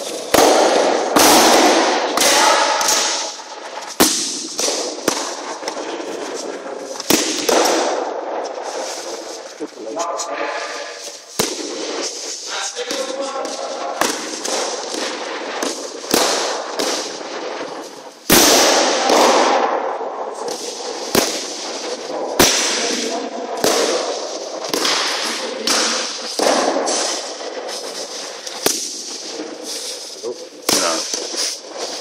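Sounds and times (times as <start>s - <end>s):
sticks cracking in sparring: 0.0s - 5.8s.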